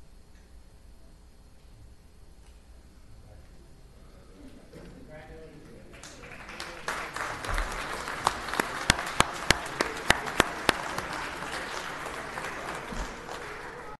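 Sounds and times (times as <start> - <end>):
audience applauding: 5.9 - 14.0
close sharp claps: 5.9 - 14.0.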